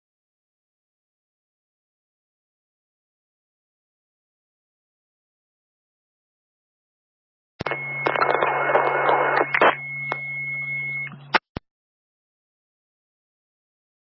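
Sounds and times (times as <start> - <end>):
radio hiss and crackle: 7.6 - 10.3
high whine: 7.6 - 11.5
radio click: 7.6 - 11.6.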